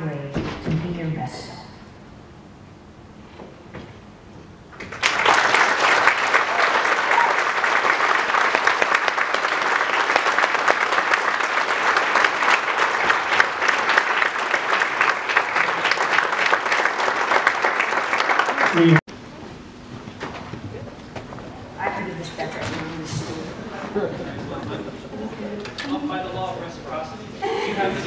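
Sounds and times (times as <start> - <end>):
audience applause: 4.8 - 19.1.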